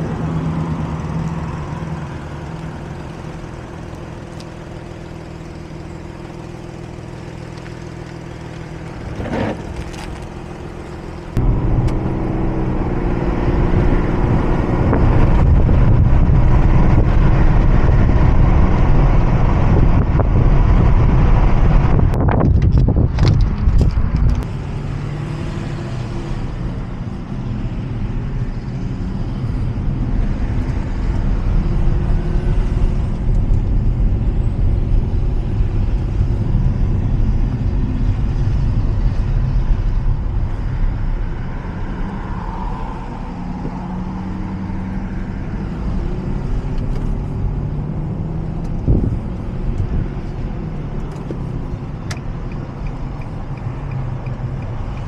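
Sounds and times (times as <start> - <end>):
car engine: 0.0 - 55.0
road noise inside car: 0.0 - 55.0.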